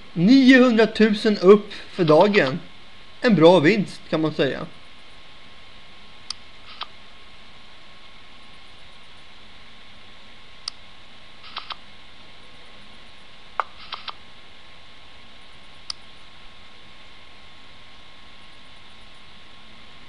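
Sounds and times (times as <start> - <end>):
steady hiss: 0.0 - 4.9
faint high hum: 0.0 - 20.0
sharp computer clicks: 6.3 - 6.9, 11.4 - 11.8, 13.6 - 14.2.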